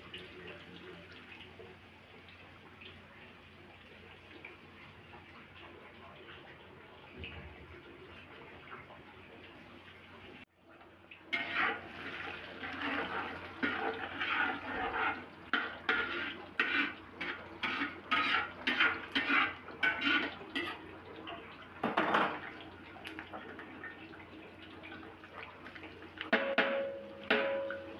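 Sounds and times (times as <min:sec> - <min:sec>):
metal spatula scraping wok: 0:11.3 - 0:20.8
garlic sizzling in oil: 0:11.3 - 0:20.9.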